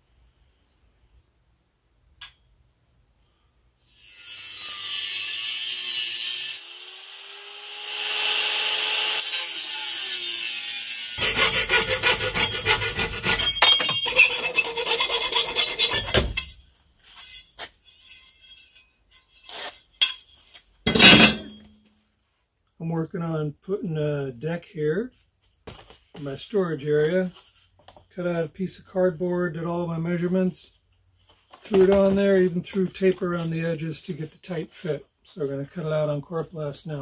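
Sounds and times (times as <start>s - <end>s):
angle grinder cutting metal: 3.9s - 16.5s
metal bar clinking: 13.3s - 14.6s, 20.9s - 21.8s.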